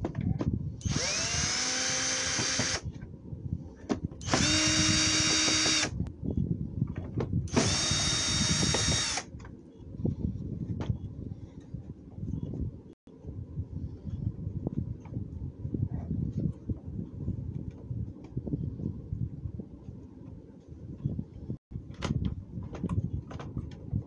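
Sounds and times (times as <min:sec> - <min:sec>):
drill motor whine: 0:00.8 - 0:02.8, 0:04.2 - 0:06.0, 0:07.5 - 0:09.2.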